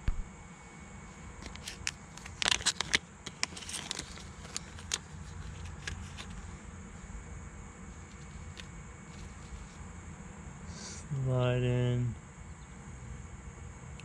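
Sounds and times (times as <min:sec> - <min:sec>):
plastic bag crinkling: 0:01.4 - 0:06.5, 0:08.0 - 0:09.8.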